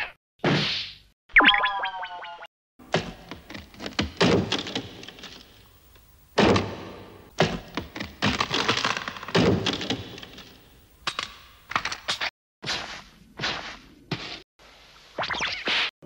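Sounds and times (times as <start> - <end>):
cartoon knocks and crashes: 2.9 - 5.2, 6.4 - 10.4.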